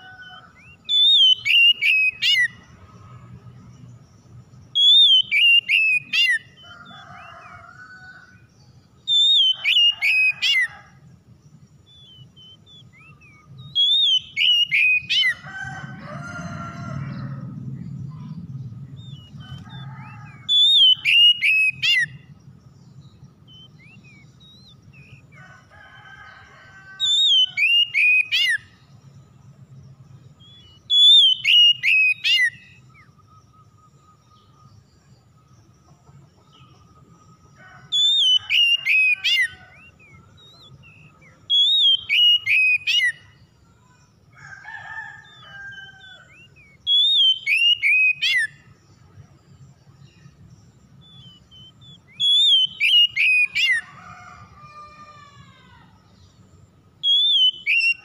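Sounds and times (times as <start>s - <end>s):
bird singing whistled phrases: 0.0s - 2.5s, 4.8s - 6.6s, 9.1s - 10.7s, 11.9s - 15.4s, 20.3s - 22.2s, 27.0s - 28.6s, 30.4s - 33.2s, 38.0s - 43.2s, 46.0s - 48.6s, 51.1s - 53.8s, 57.0s - 58.0s.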